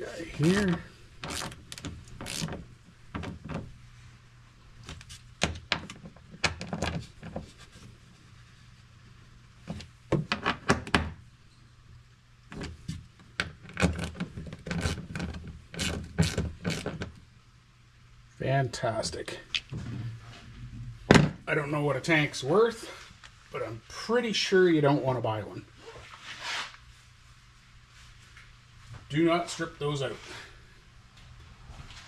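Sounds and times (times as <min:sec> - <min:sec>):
hand ratchet clicking: 0:00.5 - 0:02.5.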